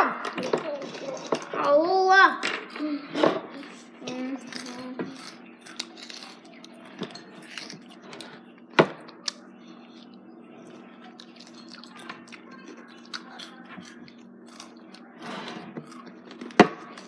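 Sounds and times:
crunching and chewing chips: 3.6s - 17.0s.

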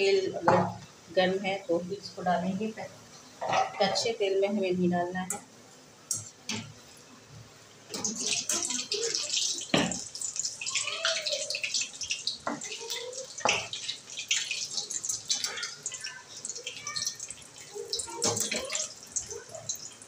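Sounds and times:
food deep-frying in hot oil: 6.1s - 20.0s.

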